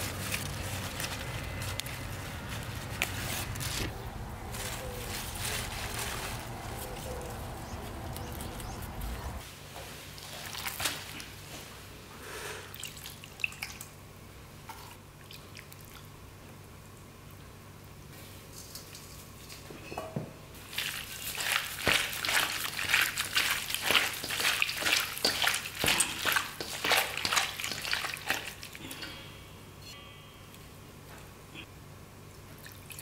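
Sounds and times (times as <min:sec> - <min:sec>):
lettuce leaves rustling and snapping: 0:00.0 - 0:09.4
low steady rumble: 0:00.0 - 0:09.4
meat squishing into bowl: 0:20.6 - 0:28.8.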